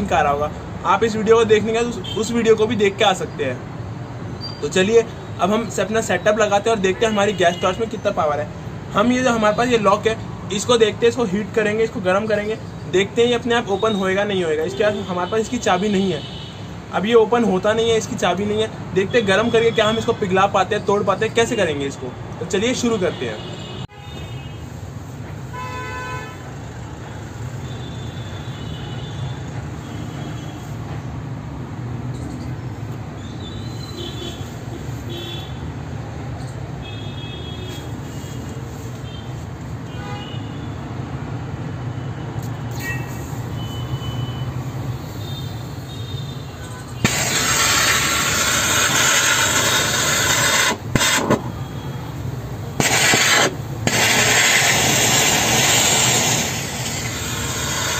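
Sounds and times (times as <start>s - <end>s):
gas torch hissing: 46.9s - 51.6s, 52.8s - 57.9s.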